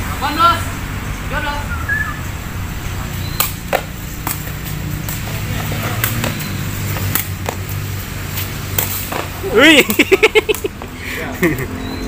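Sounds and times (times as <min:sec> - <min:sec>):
road traffic hum: 0:00.0 - 0:12.0
ball kicked sharp knocks: 0:03.3 - 0:07.7, 0:08.7 - 0:09.4.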